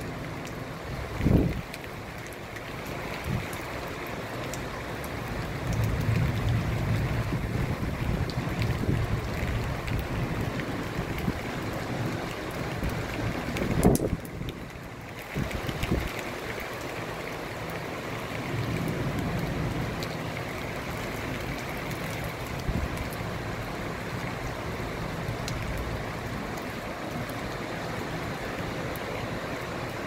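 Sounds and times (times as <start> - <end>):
heavy rain pouring: 0.0 - 30.0.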